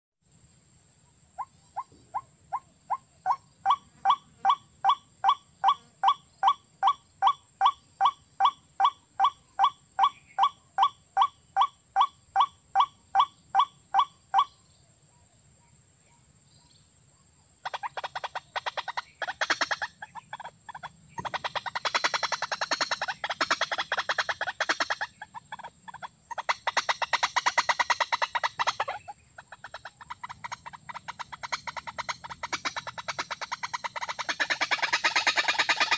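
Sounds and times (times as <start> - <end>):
bird calling evenly spaced notes: 1.2 - 14.7, 17.6 - 35.9
fast rattling bird call: 1.4 - 14.6, 17.6 - 35.9.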